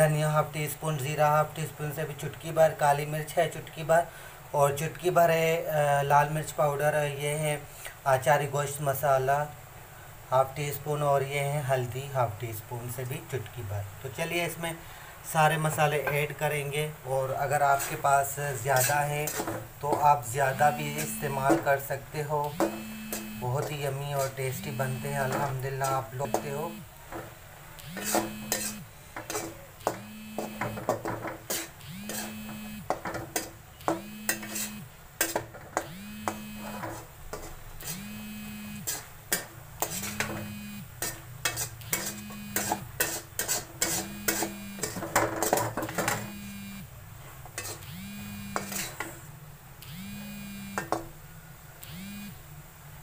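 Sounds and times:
spatula scraping a pan: 0:17.1 - 0:46.4, 0:47.2 - 0:49.3.

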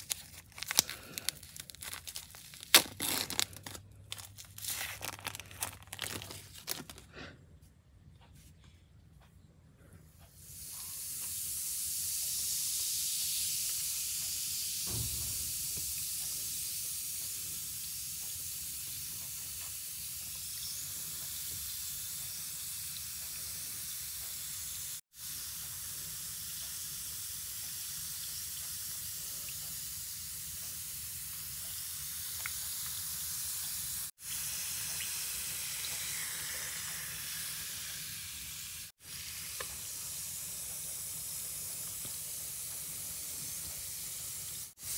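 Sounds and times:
bath bomb fizzing in water: 0:00.0 - 0:07.0.

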